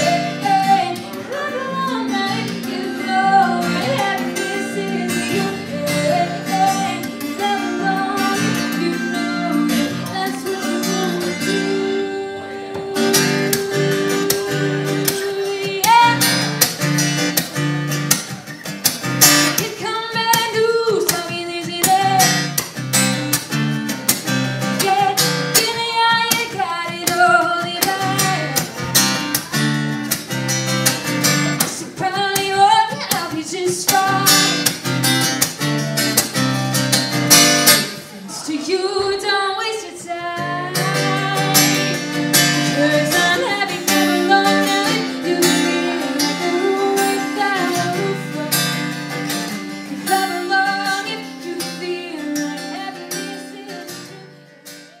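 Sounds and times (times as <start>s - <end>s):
woman singing: 0.0s - 16.6s, 19.4s - 22.6s, 24.6s - 28.8s, 31.5s - 34.8s, 38.2s - 54.8s
strummed acoustic guitar: 0.0s - 55.0s.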